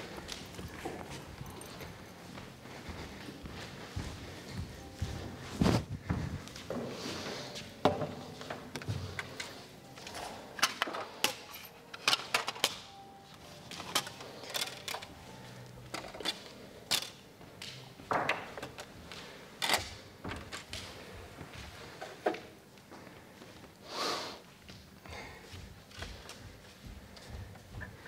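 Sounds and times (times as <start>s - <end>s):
feet tapping on studio floor: 0.0s - 6.9s, 24.6s - 28.0s
feet brushing on floor: 0.0s - 7.8s.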